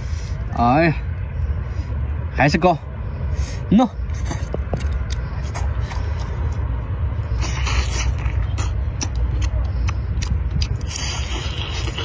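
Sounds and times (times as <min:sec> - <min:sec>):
chewing close to microphone: 0:04.1 - 0:12.0.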